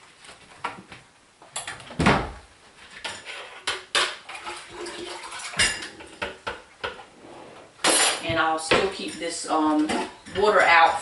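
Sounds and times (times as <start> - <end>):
utensils and cupboards clattering: 2.8 - 7.0, 7.8 - 11.0.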